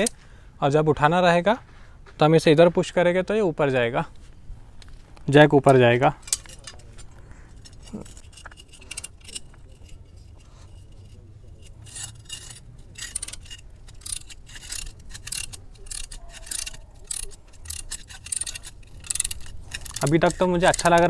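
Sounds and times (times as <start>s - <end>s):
car jack ratcheting: 6.2s - 21.0s.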